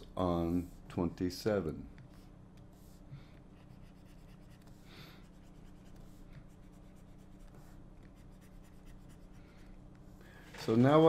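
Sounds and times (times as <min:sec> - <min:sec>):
low steady hum: 0:00.0 - 0:11.0
stylus scratching on drawing tablet: 0:02.1 - 0:09.7.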